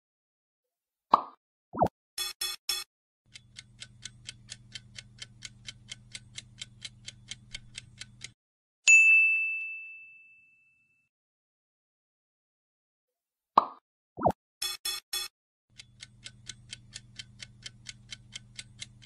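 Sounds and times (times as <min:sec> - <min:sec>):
bright ding: 0:08.9 - 0:11.1.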